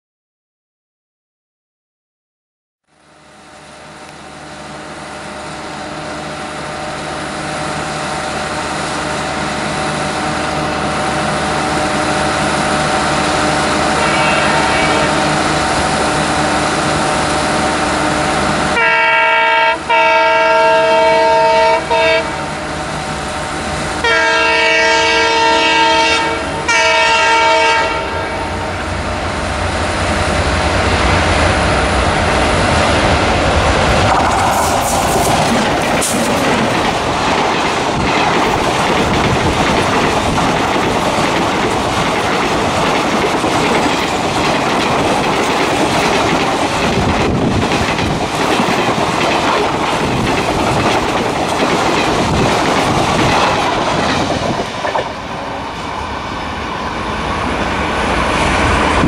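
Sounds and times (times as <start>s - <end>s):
diesel locomotive engines: 2.9s - 59.0s
train rumble: 3.0s - 59.0s
locomotive horn blasts: 13.9s - 15.4s, 18.7s - 22.5s, 24.0s - 28.6s.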